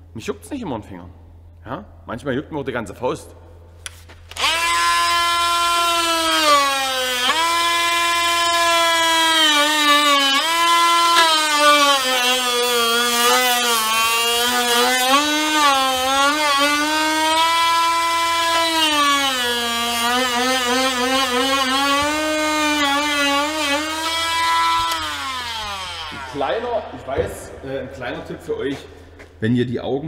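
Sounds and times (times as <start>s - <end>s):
rotary grinder whining: 4.3s - 26.8s.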